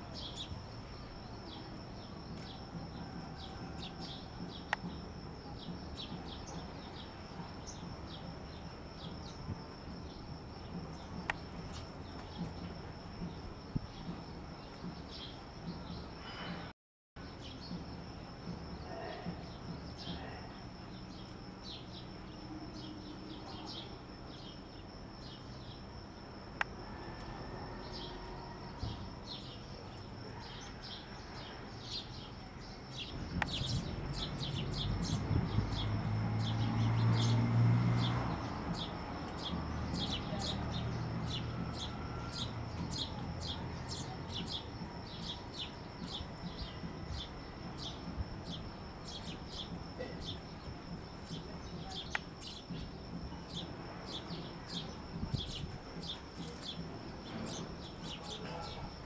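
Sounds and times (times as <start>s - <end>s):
sparrows chirping: 0.0s - 16.5s, 17.2s - 26.2s, 28.8s - 59.0s.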